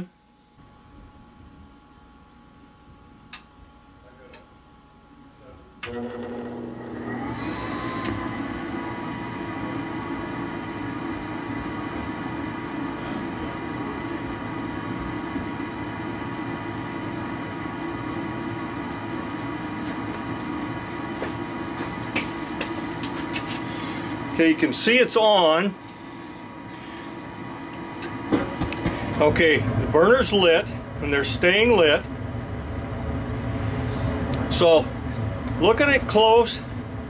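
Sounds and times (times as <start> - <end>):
furnace blower humming and whining: 0.0 - 37.0.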